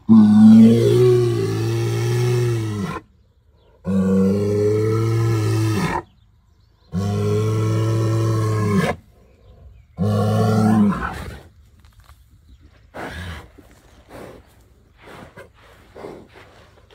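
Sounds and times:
bull bellowing: 0.0s - 3.1s.

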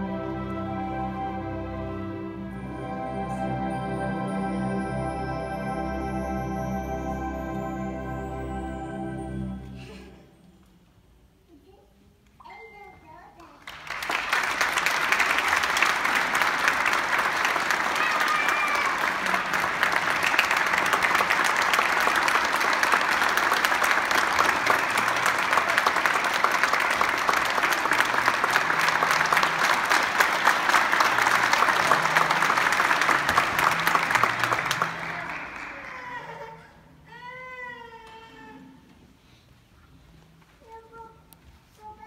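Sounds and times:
audience applauding: 13.6s - 36.8s.

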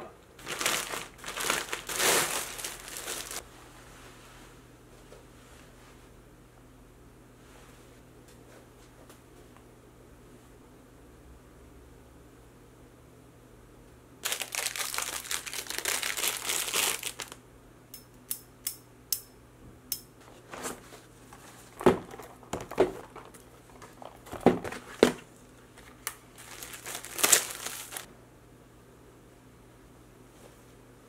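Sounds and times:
packaging crinkling: 0.4s - 3.4s, 14.2s - 17.4s, 21.4s - 28.1s
handling knocks: 21.6s - 25.3s.

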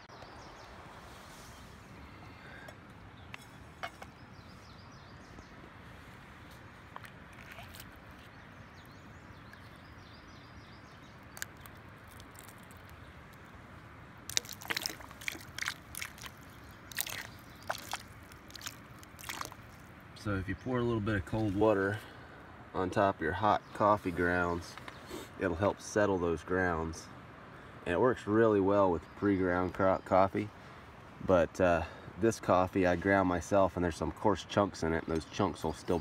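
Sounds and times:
water splashing and dripping: 11.2s - 13.5s, 14.2s - 20.1s.

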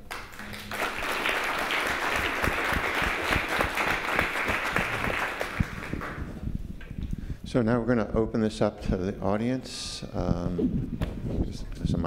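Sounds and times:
audience applauding: 0.0s - 6.3s.

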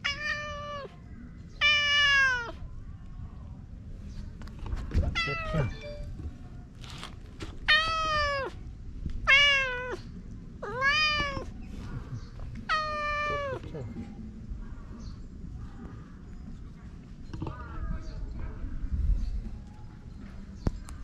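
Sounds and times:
cat meowing: 0.0s - 1.0s, 1.6s - 2.6s, 5.1s - 5.8s, 7.7s - 8.6s, 9.2s - 11.6s, 12.7s - 13.7s.

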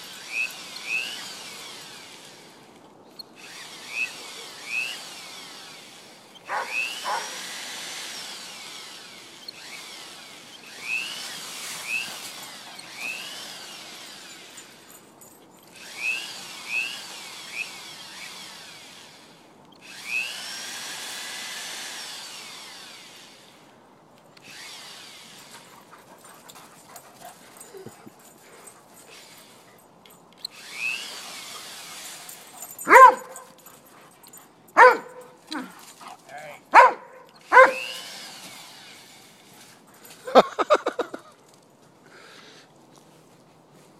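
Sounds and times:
lure machine motor whirring: 0.0s - 14.9s, 15.7s - 23.7s, 24.4s - 25.6s, 30.3s - 33.6s, 37.2s - 39.5s
dog barking: 6.5s - 7.4s, 32.8s - 33.5s, 34.8s - 35.7s, 36.7s - 38.0s.

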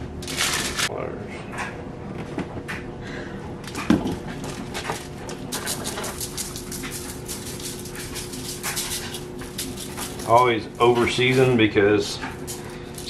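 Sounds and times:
seasoning shaker rattling: 4.6s - 13.0s.

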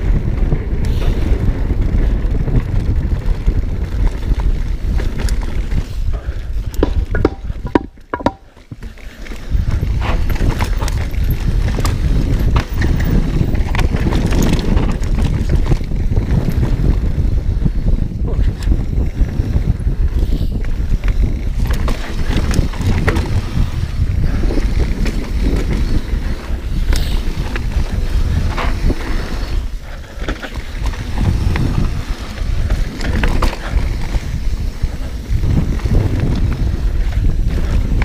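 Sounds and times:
wind rumble on microphone: 0.0s - 38.0s
bike clattering over rocks: 6.6s - 16.7s, 21.2s - 26.0s, 30.1s - 34.1s
tyres humming on dirt: 18.8s - 38.0s.

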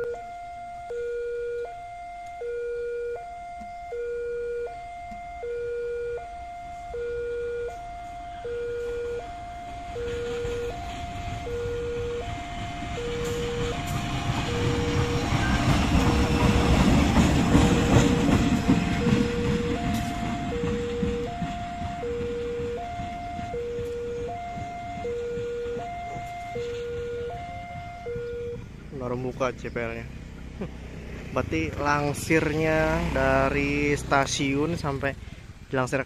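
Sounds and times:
level crossing alarm two tones: 0.0s - 28.7s
diesel locomotive engine: 0.0s - 36.0s.

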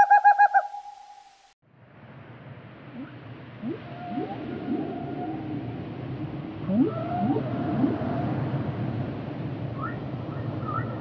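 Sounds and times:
humpback whale calling: 3.0s - 5.8s, 6.7s - 8.6s.

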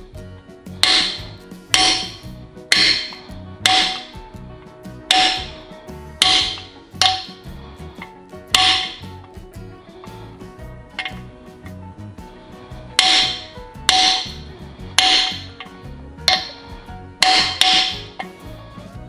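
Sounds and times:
mallet striking metal: 0.8s - 4.4s, 5.0s - 7.6s, 8.5s - 9.2s, 13.0s - 18.4s.

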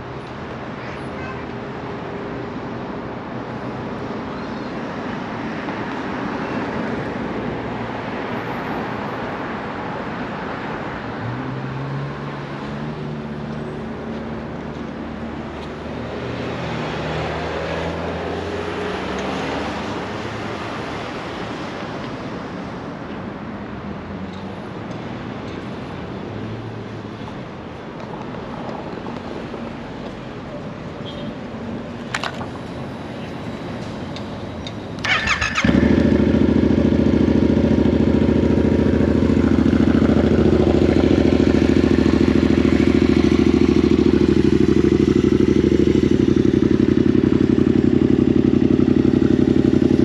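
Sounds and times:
cars passing: 0.0s - 50.0s
engines revving pulling away: 16.3s - 20.5s, 34.9s - 50.0s.

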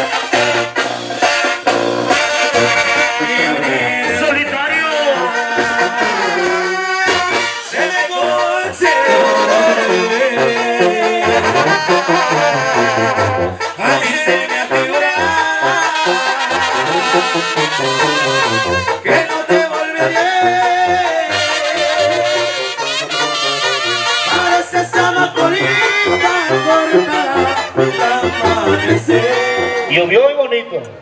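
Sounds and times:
drums: 0.0s - 4.0s, 5.6s - 7.7s
sousaphone bass line: 0.0s - 19.4s, 20.0s - 31.0s
saxophones and clarinets: 0.0s - 30.2s
brass band playing: 0.0s - 30.6s
trumpets and trombones: 0.0s - 30.6s.

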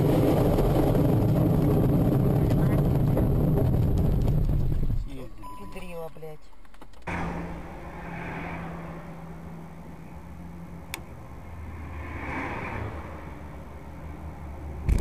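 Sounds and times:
low engine hum: 0.0s - 5.9s, 7.0s - 15.0s
passing lorries and cars: 7.0s - 15.0s.

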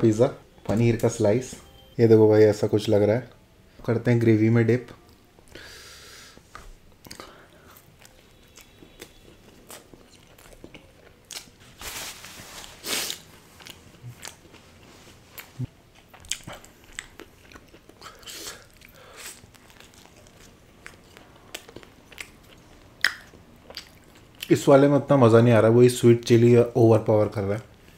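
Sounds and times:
person chewing crunchy food: 7.0s - 11.6s, 12.5s - 24.5s
wet mouth clicks: 23.0s - 24.0s.

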